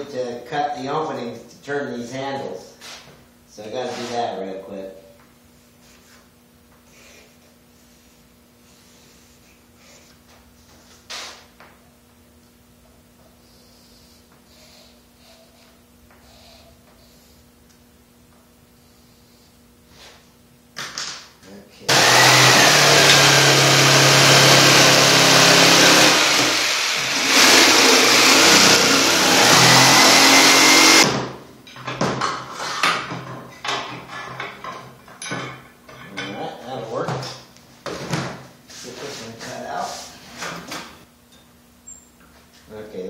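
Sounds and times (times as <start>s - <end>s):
electric jigsaw cutting plywood: 21.9s - 31.3s.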